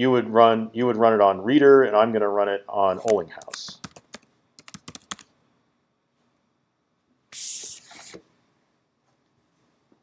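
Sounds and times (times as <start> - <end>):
short hiss: 7.3 - 8.3.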